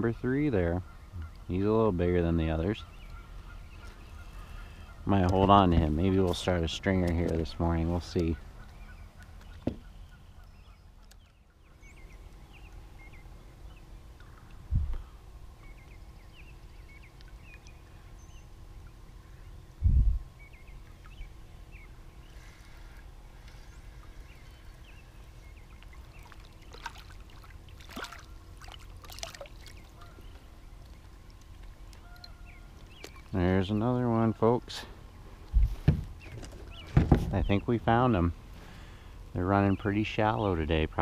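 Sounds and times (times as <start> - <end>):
steady low rumble: 0.0 - 41.0
water splashing and dripping: 25.7 - 33.4
dull thumps: 35.6 - 37.5.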